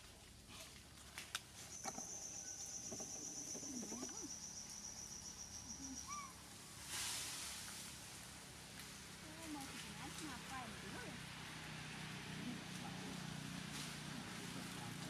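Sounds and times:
insect trilling: 1.7s - 6.4s.

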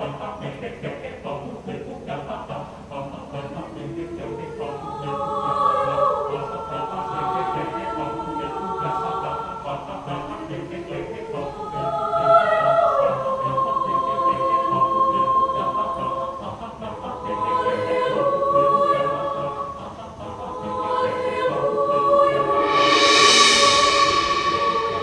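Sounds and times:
choir singing held chords: 0.0s - 25.0s.

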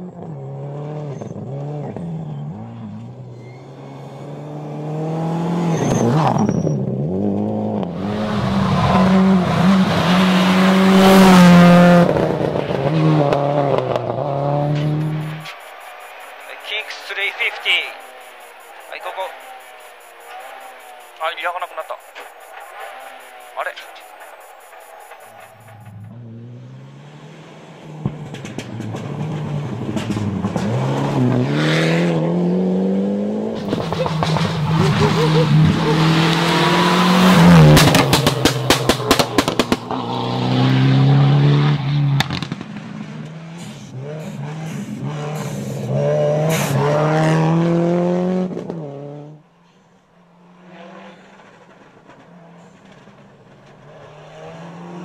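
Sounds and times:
rally car engine full throttle: 0.0s - 55.0s
second rally car engine: 0.0s - 55.0s
sharp cracks: 37.3s - 40.0s.

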